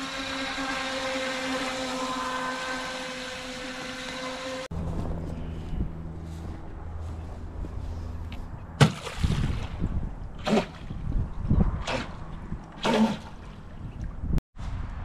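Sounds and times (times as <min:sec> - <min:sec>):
speedboat motor bursts: 0:00.0 - 0:04.7.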